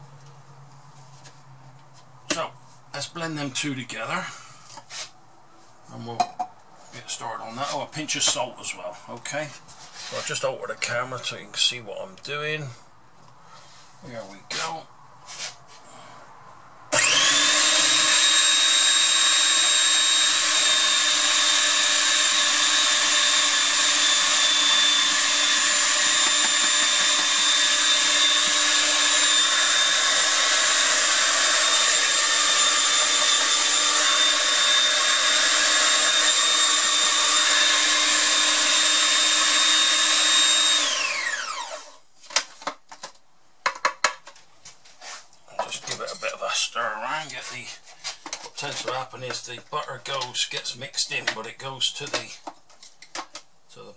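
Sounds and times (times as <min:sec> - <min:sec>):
food processor whining: 0:16.9 - 0:42.0.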